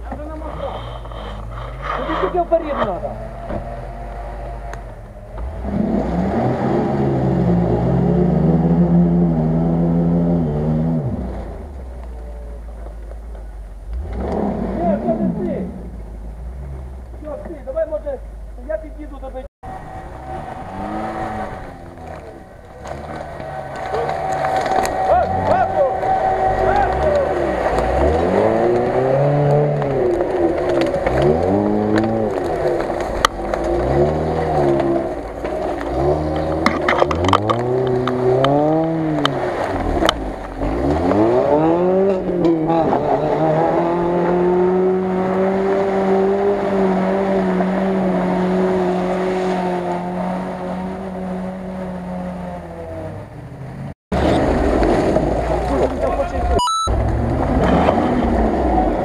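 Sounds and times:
car engine revving hard: 0.2 - 11.7, 13.9 - 15.4, 19.7 - 53.1, 56.9 - 59.0
sharp cracks: 20.5 - 41.0.

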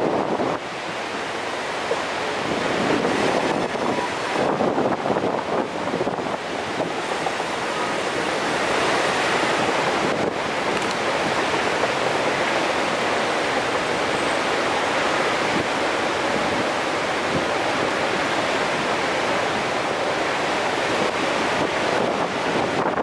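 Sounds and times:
waterfall roaring: 0.0 - 23.0.

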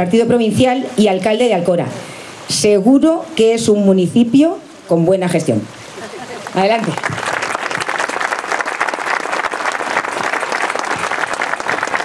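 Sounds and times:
audience applauding: 6.3 - 12.0.

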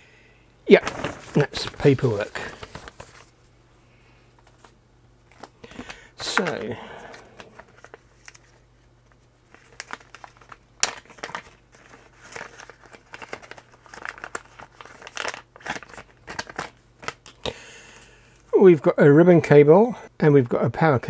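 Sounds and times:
plastic bag crinkling: 0.7 - 3.4, 9.4 - 17.4.

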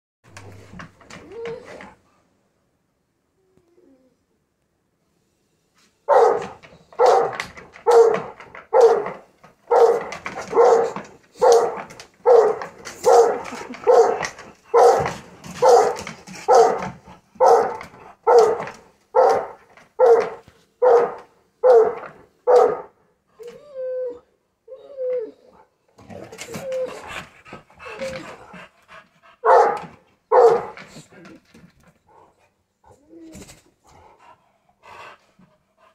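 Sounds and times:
dog whining and yipping: 0.5 - 2.0, 23.4 - 25.7, 26.3 - 27.2, 27.8 - 28.4
dogs barking excitedly: 6.1 - 23.0, 26.2 - 31.0.

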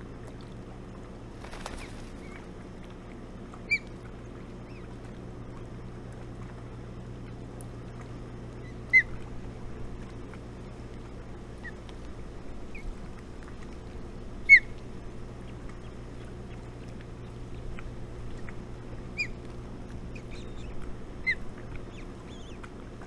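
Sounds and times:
low background hum: 0.0 - 23.0
osprey chirping: 1.4 - 2.4, 20.1 - 22.6.

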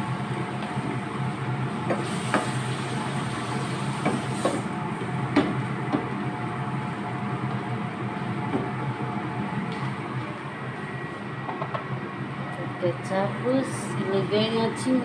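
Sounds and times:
chicken simmering in a pan: 0.0 - 9.3
steady low hum: 4.4 - 15.0.

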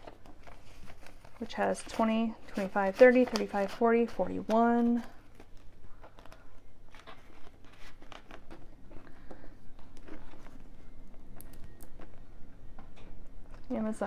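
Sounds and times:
plastic pouches crinkling: 0.0 - 12.2
banknotes rustling: 0.0 - 12.3.

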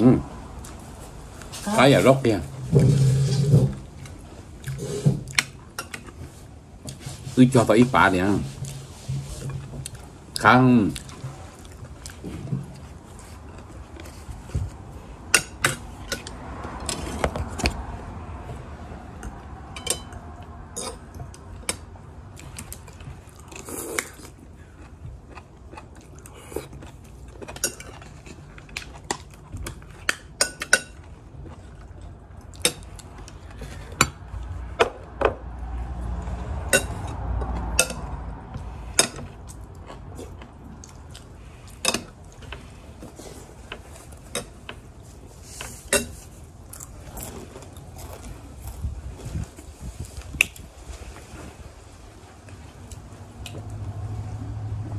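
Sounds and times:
person chewing: 9.6 - 17.6, 19.1 - 34.8, 35.9 - 51.6.

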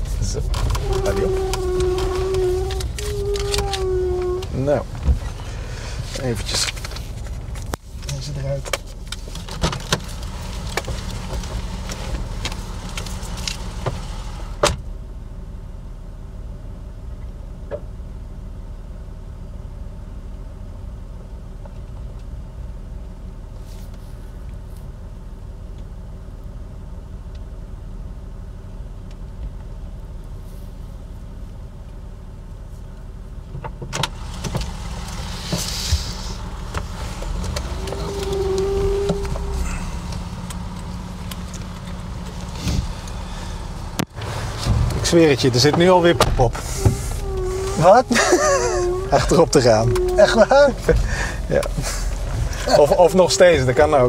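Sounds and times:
clicks and rustling: 0.0 - 5.4, 6.1 - 13.6
car door shutting: 0.0 - 6.8, 13.6 - 14.9, 33.6 - 53.6
low cabin hum: 0.0 - 54.0.

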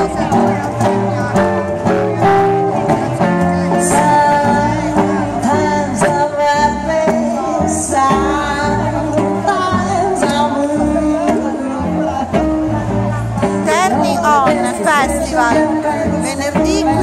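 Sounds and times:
swing dance music with singer: 0.0 - 17.0.

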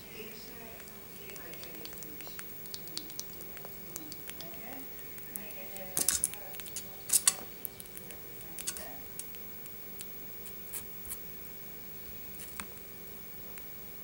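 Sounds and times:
faint steady hum: 0.0 - 14.0
animal gnawing crunching apple: 0.8 - 11.2.

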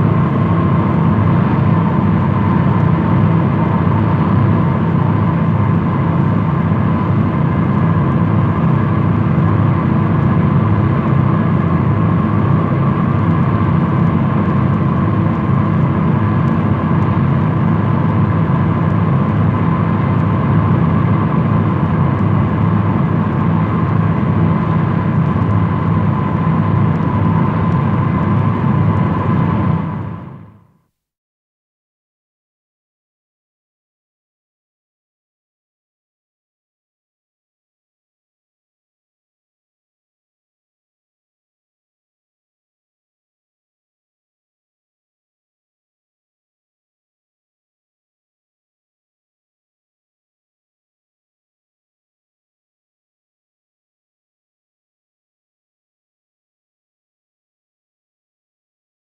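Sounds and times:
piston aircraft engines droning: 0.0 - 30.7.

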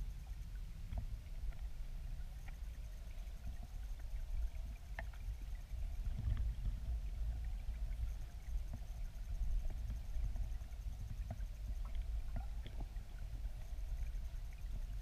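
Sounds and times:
low rumble of river water: 0.0 - 15.0
faint sharp clicks: 4.7 - 5.3.

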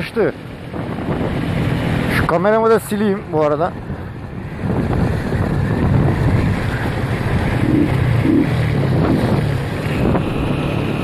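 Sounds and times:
wind buffeting microphone: 0.0 - 11.0
motorcycle engine running: 3.8 - 11.0.

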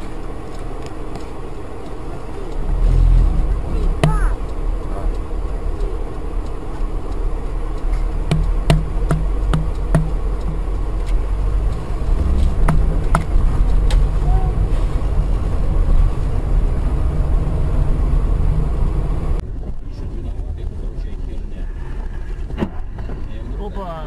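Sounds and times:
vehicle engine and road rumble: 0.0 - 24.0
sharp clicks and knocks: 3.8 - 14.2.

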